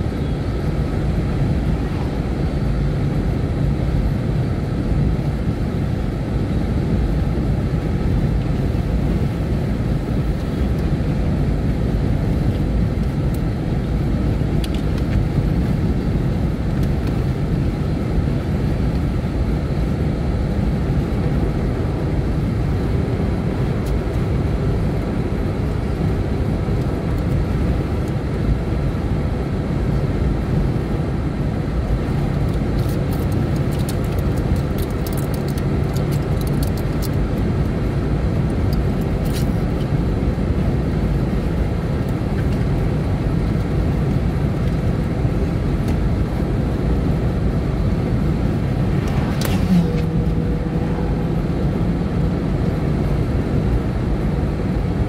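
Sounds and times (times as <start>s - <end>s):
car driving rumble: 43.3s - 54.8s.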